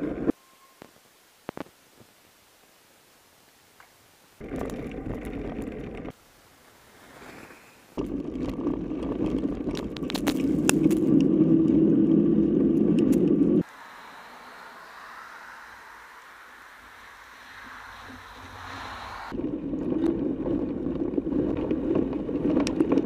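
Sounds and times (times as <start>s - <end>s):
bike tyre rolling over snow: 4.4s - 13.6s, 19.0s - 23.0s.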